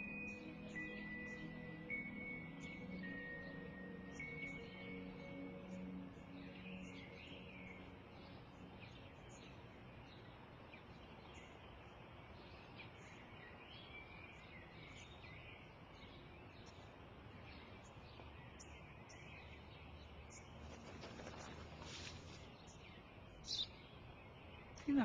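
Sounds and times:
low steady hiss: 0.0s - 25.0s
small birds chirping: 0.0s - 25.0s.

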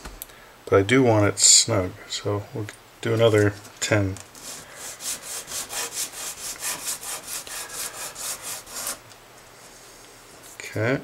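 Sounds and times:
sanding on sandpaper: 4.4s - 9.0s.

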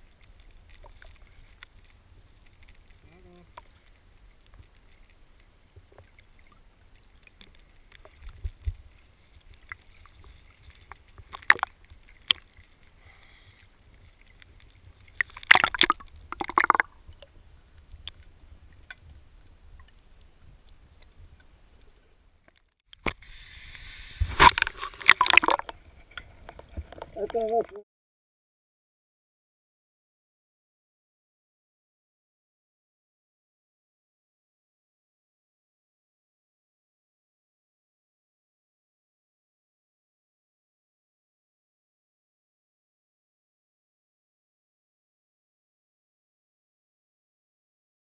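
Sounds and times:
water splashing: 5.8s - 13.0s, 14.1s - 17.3s, 23.0s - 27.8s.

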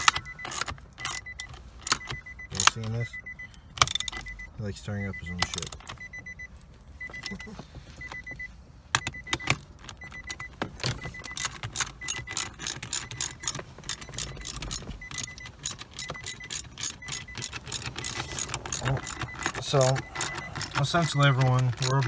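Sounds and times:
hand ratchet clicking: 0.0s - 2.7s, 11.2s - 22.0s
short high beep: 11.2s - 22.0s.

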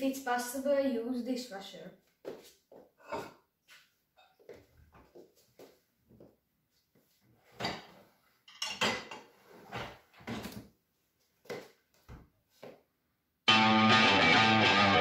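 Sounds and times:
plates clinking in dishwasher racks: 7.6s - 10.6s.

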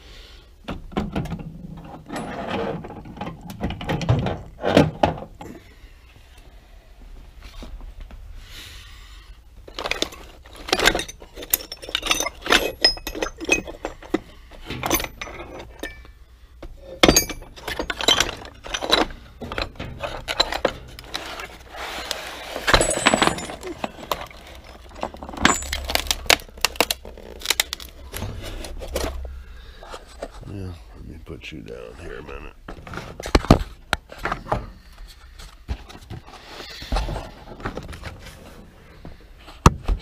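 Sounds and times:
metal tools clattering in a box: 9.7s - 16.2s, 16.9s - 29.3s.

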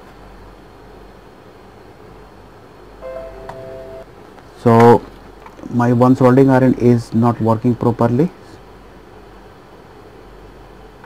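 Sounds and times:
background hiss: 3.0s - 4.1s
low hum: 3.0s - 4.1s.

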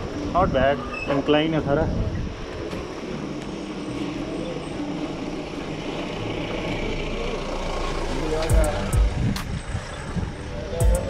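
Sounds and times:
wind rumble on microphone: 0.0s - 3.3s, 8.6s - 11.0s
truck engine drone: 2.0s - 11.0s.

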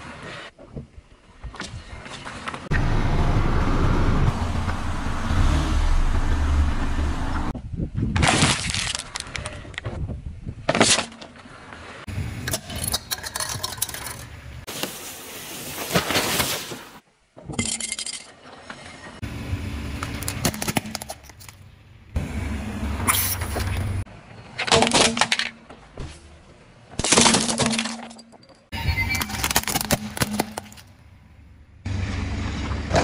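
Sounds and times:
car low rumble: 2.7s - 8.0s, 19.2s - 20.5s, 21.2s - 24.3s, 30.9s - 33.0s
tyres crushing plastic objects: 8.2s - 9.9s, 24.6s - 25.7s, 26.9s - 28.6s, 29.2s - 30.9s.

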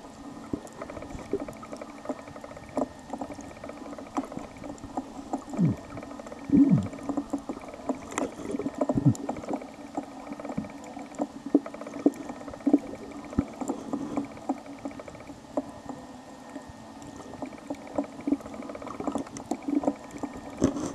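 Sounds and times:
muffled underwater water hum: 0.0s - 20.9s
underwater clicks and knocks: 0.5s - 16.0s.

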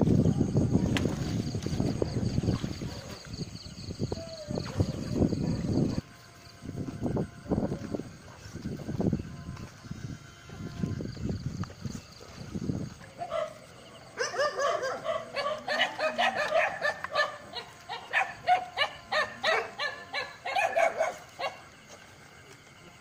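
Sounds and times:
dog barking rapidly: 13.2s - 13.6s, 14.2s - 21.6s.

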